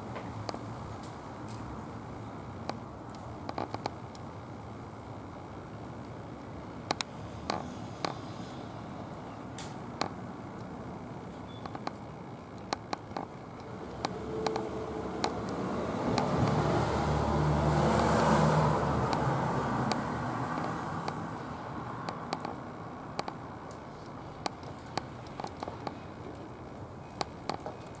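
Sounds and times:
sharp clicks: 11.6 - 16.6, 23.2 - 26.4
passing vehicle rumble: 13.5 - 23.1.

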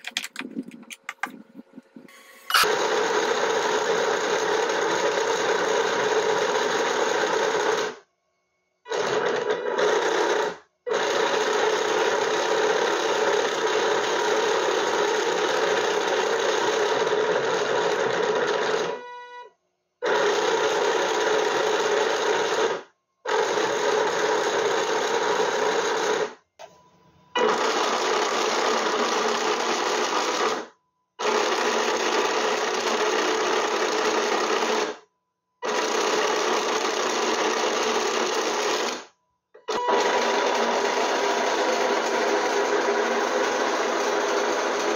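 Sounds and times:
plastic tracks clattering: 0.0 - 2.7
electric motor whir: 0.0 - 2.8.

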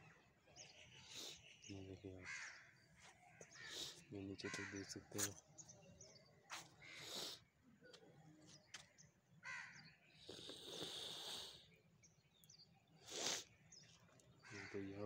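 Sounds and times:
crows cawing: 2.2 - 5.0, 9.4 - 9.9, 14.4 - 15.0.

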